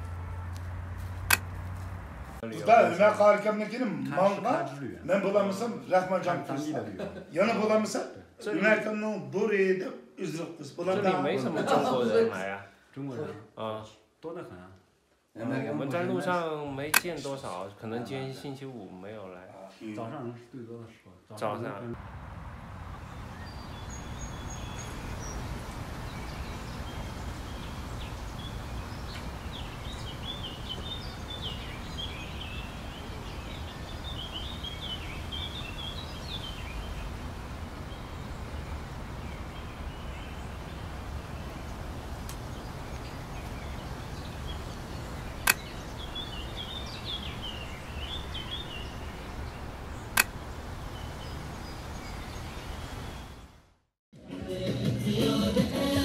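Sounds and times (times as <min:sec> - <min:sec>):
small birds chirping: 0:22.0 - 0:53.7
sharp loud clicks: 0:45.4 - 0:45.7, 0:50.1 - 0:50.4.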